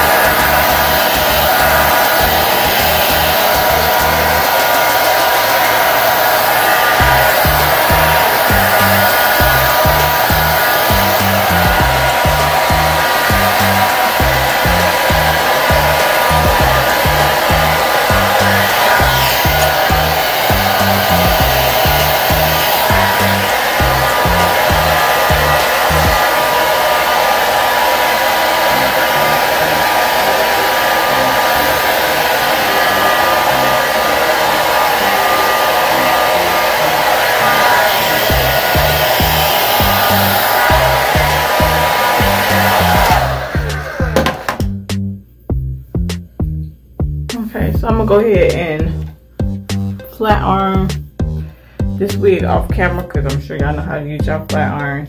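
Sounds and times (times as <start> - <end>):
background music bass line: 0.0 - 4.8, 7.0 - 26.3, 38.0 - 55.0
hair dryer blowing: 0.0 - 44.7.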